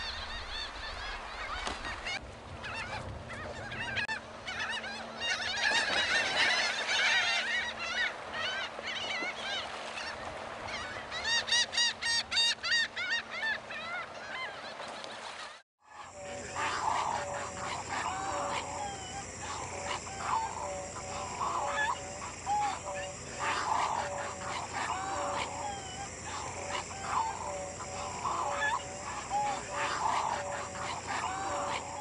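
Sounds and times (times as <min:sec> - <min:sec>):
terns and gulls calling: 0:00.0 - 0:32.0
low honking bird calls: 0:15.8 - 0:32.0.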